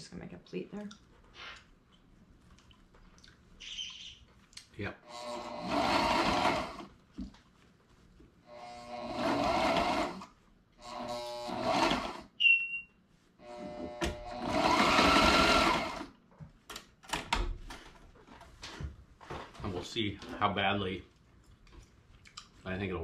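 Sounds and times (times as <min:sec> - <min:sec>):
sewing machine stitching: 0:05.2 - 0:06.9, 0:08.7 - 0:10.3, 0:10.9 - 0:12.3, 0:14.1 - 0:16.1.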